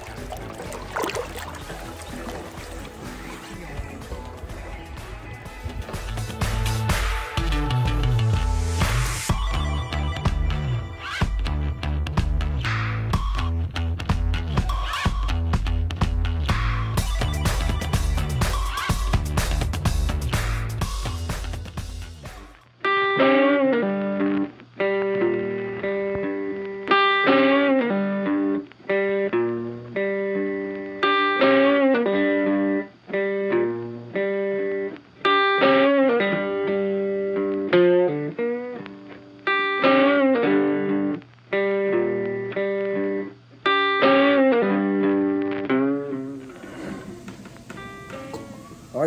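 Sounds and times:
plucked melody music: 0.0 - 14.9.

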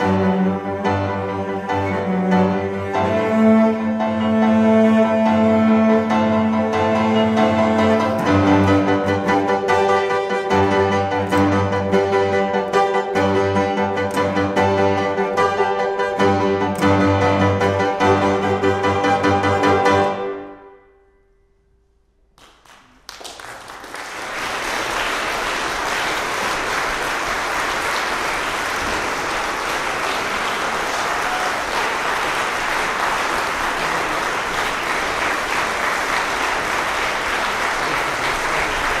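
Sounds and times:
piano and cello chord: 0.0 - 21.2
audience applause: 22.4 - 39.0.

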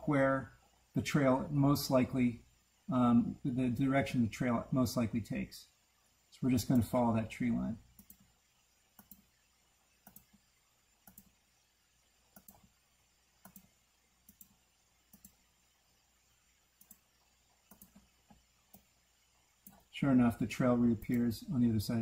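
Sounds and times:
computer mouse button clicks: 11.0 - 11.3, 12.4 - 12.6, 17.7 - 18.0.

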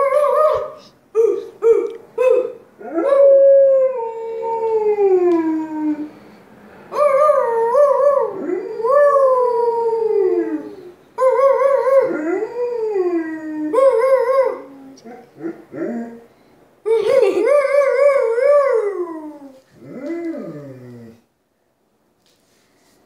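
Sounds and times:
dog howling: 17.3 - 21.2.

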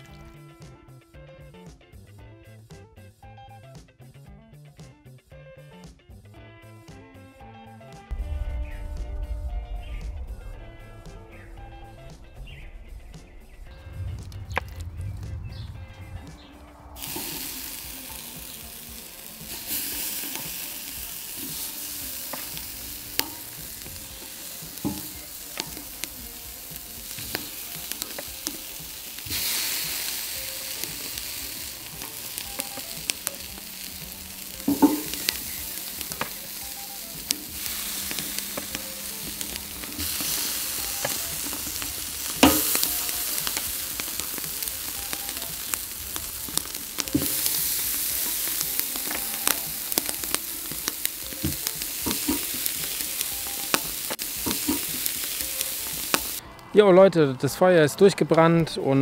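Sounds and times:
meat sizzling on a grill: 10.5 - 56.4
sharp clicks and pops: 19.4 - 56.4.

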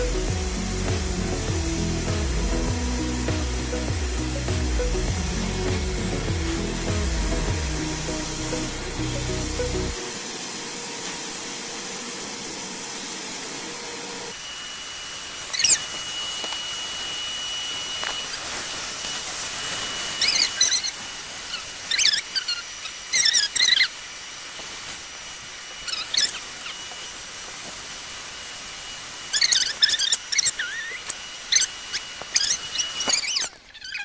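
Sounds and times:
vacuum cleaner running: 0.0 - 33.7
high-pitched squeaks: 15.4 - 23.9, 25.8 - 27.0, 29.2 - 34.0.

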